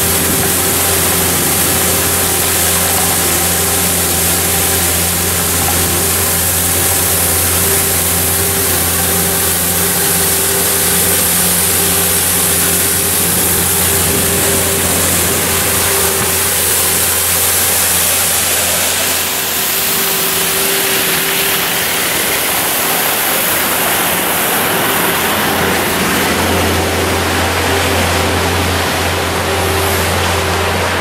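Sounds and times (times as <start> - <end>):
street sweeper brushes rushing: 0.0 - 31.0
truck engine hum: 0.0 - 31.0.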